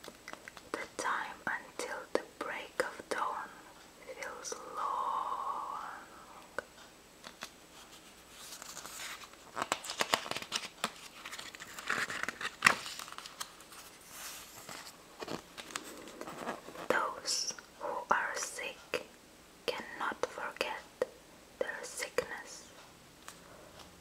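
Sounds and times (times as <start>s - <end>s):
book pages rustling: 7.2s - 17.1s
page snaps: 9.6s - 13.5s.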